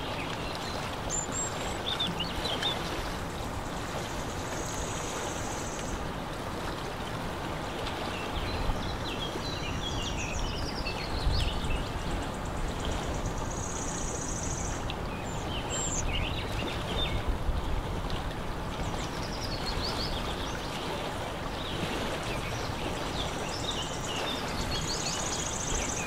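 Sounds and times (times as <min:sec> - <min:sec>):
water and wind rushing: 0:00.0 - 0:26.0.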